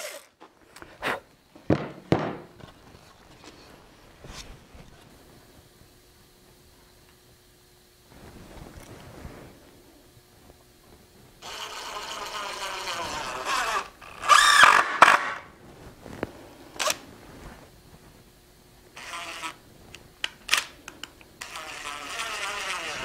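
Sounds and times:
cordless drill driving screws: 0:00.0 - 0:00.3, 0:11.4 - 0:15.4, 0:21.4 - 0:23.0.

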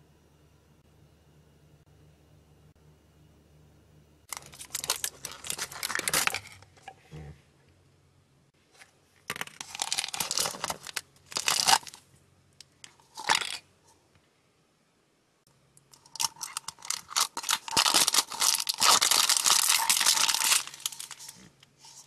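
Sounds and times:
crinkly plastic and foil packaging: 0:04.3 - 0:06.7, 0:09.3 - 0:12.1, 0:12.8 - 0:13.6, 0:15.9 - 0:22.0.

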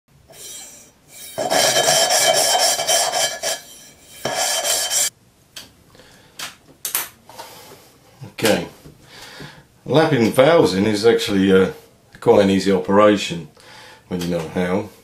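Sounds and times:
valve grinding on its seat: 0:00.3 - 0:03.6.

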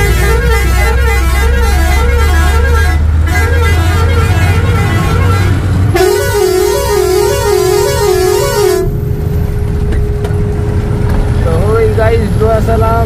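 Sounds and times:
warbling horn-like tone: 0:00.0 - 0:09.0
truck engine humming: 0:00.0 - 0:13.0.

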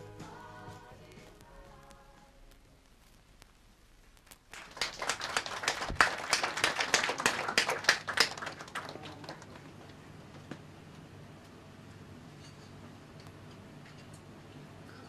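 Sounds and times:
small audience clapping: 0:04.4 - 0:10.1.

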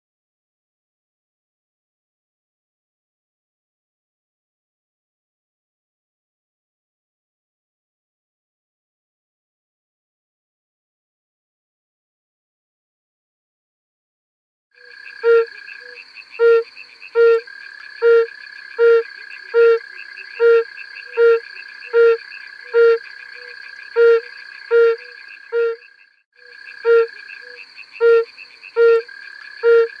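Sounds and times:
toad hooting call: 0:14.8 - 0:30.0.

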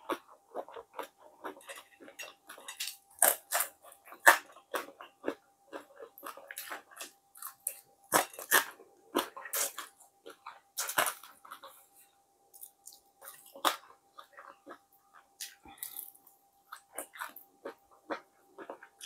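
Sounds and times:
chewing crunchy fried fish: 0:00.0 - 0:19.0.

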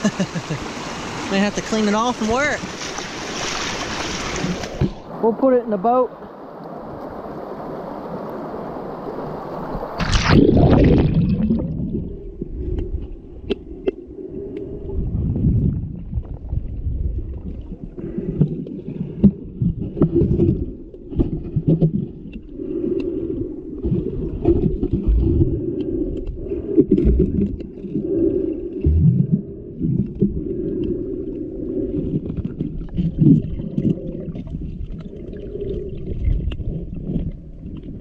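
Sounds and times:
rushing river water: 0:00.0 - 0:11.6
splash: 0:02.4 - 0:05.0, 0:09.9 - 0:11.9
underwater rumbling and gurgling: 0:06.3 - 0:38.0.

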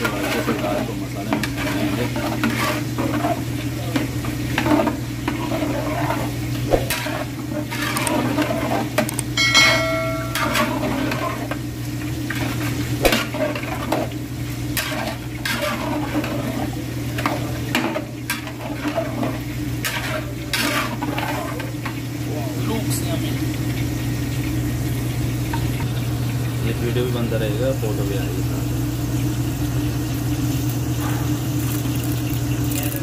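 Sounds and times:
ladle scraping and knocking pot: 0:00.0 - 0:11.6, 0:14.8 - 0:21.8
low sizzle: 0:00.0 - 0:33.0
brief ringing tone: 0:09.4 - 0:10.8.

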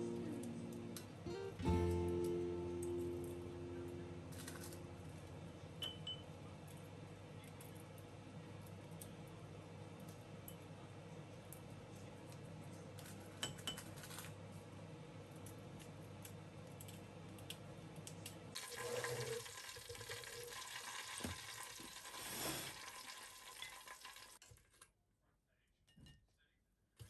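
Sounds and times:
low steady hum: 0:00.0 - 0:19.4.

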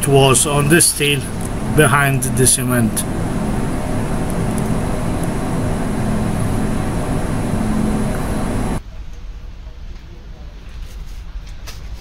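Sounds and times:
even hiss: 0:00.0 - 0:08.8
machine humming: 0:00.0 - 0:08.8.

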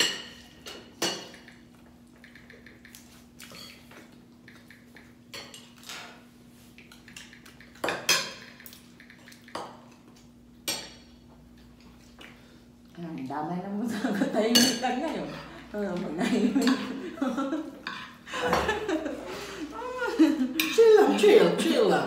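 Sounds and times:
cutlery clinking on plates: 0:06.8 - 0:09.8.

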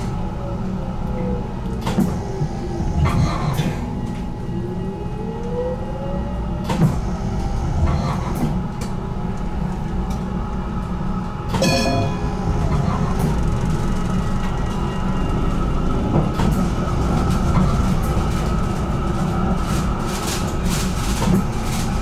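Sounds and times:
tram motor whine: 0:00.0 - 0:21.9
tram rumbling on track: 0:00.0 - 0:22.0
high-pitched ringing tone: 0:11.6 - 0:12.6.

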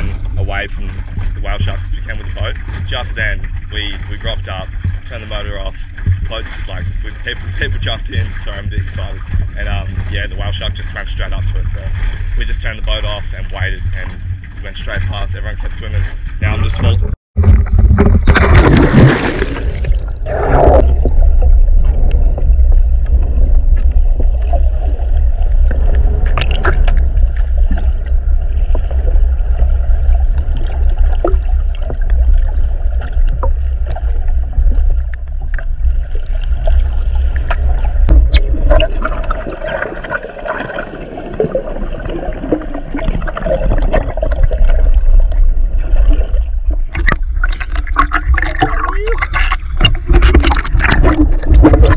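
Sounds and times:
splash: 0:00.0 - 0:16.1, 0:16.8 - 0:51.9
muffled underwater rumble: 0:00.0 - 0:51.9
water gurgling: 0:00.0 - 0:51.9
underwater clicks: 0:16.8 - 0:51.9.

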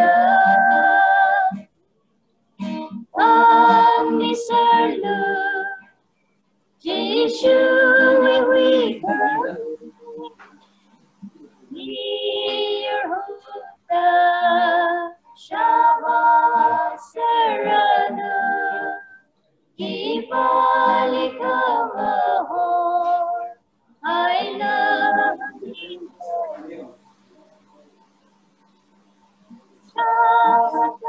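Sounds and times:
women singing worship song: 0:00.0 - 0:01.7, 0:02.9 - 0:06.0, 0:06.8 - 0:10.6, 0:11.7 - 0:19.2, 0:19.8 - 0:26.8, 0:29.9 - 0:31.0.

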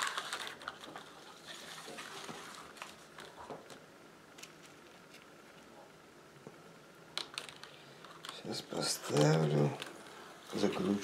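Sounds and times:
rustling and small clicks: 0:07.2 - 0:10.1.

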